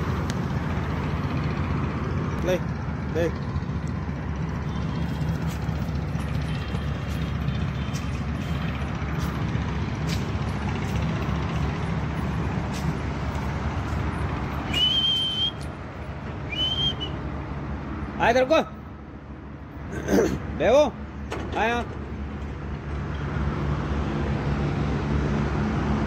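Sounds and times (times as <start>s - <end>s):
low outdoor rumble: 0.0s - 26.0s
person whistling to call a dog: 14.7s - 15.7s, 16.5s - 17.2s.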